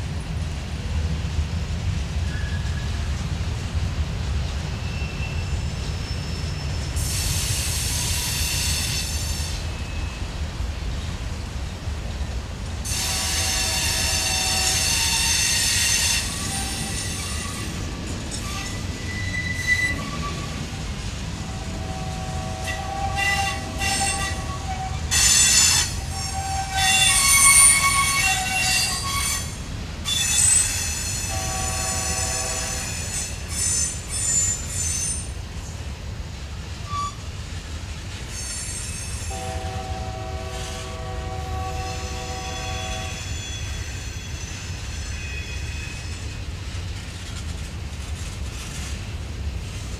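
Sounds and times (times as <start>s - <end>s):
low rumble of passing train: 0.0s - 49.9s
steel wheels squealing: 4.8s - 10.3s, 12.9s - 20.9s, 21.5s - 35.4s, 36.8s - 37.4s, 38.1s - 39.5s, 41.6s - 47.6s.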